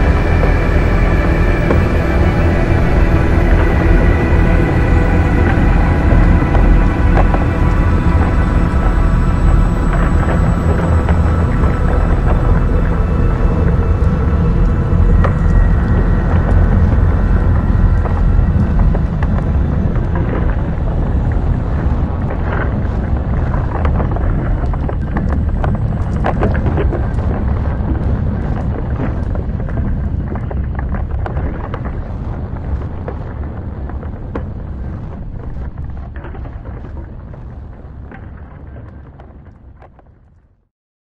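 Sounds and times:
grinding cracking rock: 0.0s - 40.3s
deep steady rumbling: 0.0s - 40.6s.

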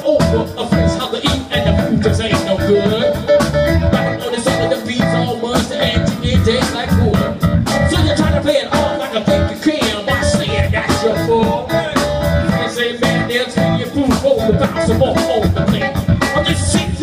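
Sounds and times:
drum beat: 0.0s - 17.0s
electric guitar: 0.0s - 17.0s
keyboard: 0.0s - 17.0s.

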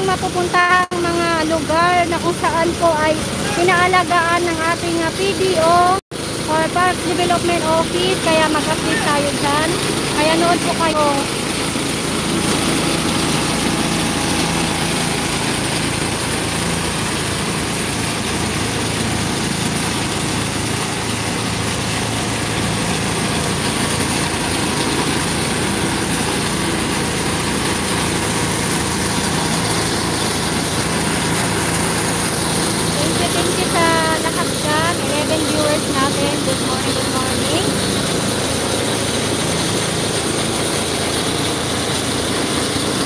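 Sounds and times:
truck engine idling: 0.0s - 43.0s
hose spraying water: 0.1s - 43.0s.

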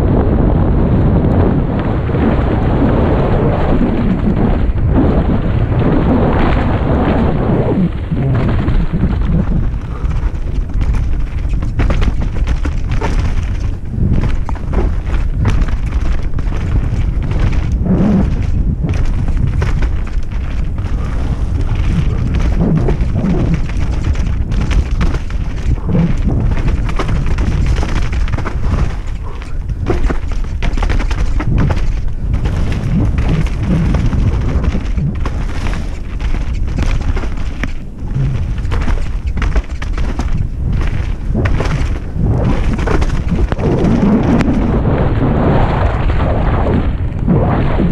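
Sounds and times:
wind rumble on camera: 0.0s - 47.9s
bike rattling and knocking: 7.9s - 44.8s
bike clattering knocks: 23.6s - 37.8s.

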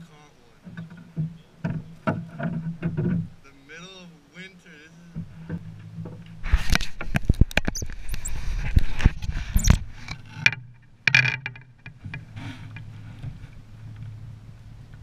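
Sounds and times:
low hum: 4.8s - 15.0s.

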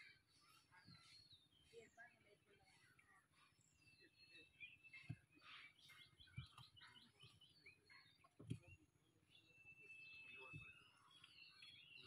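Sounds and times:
faint birds chirping: 0.0s - 12.0s.

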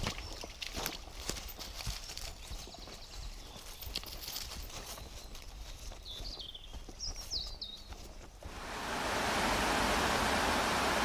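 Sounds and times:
birds chirping: 1.9s - 9.2s
water rushing into spillway: 8.5s - 11.0s.

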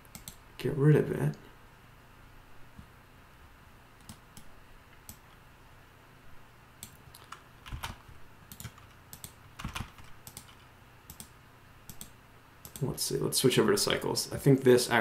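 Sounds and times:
faint low hum: 0.0s - 15.0s
computer keyboard tapping: 6.8s - 11.3s.

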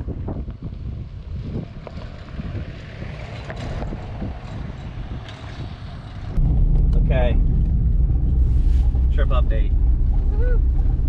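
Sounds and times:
wind buffeting microphone: 0.0s - 11.0s
truck cab drone: 0.2s - 11.0s
truck driving past: 2.1s - 11.0s.

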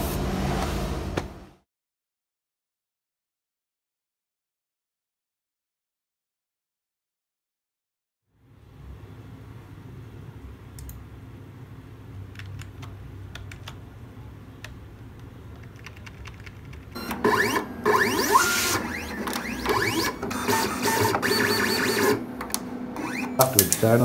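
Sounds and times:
plotter motors whining: 17.0s - 24.0s.

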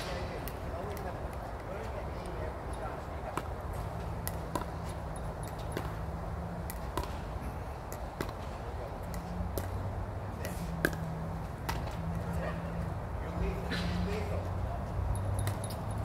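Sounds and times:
ball bouncing on court: 3.3s - 7.3s, 10.4s - 12.1s, 15.2s - 15.8s.

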